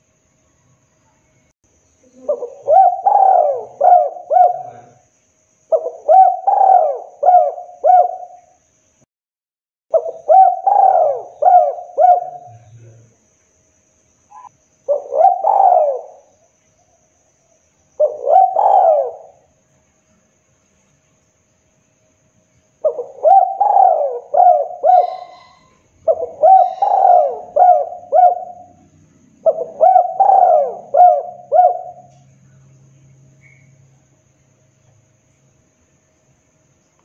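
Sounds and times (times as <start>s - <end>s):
dove cooing: 2.0s - 5.0s, 5.7s - 8.4s, 9.9s - 13.0s, 14.3s - 16.3s, 18.0s - 19.5s, 22.8s - 32.2s.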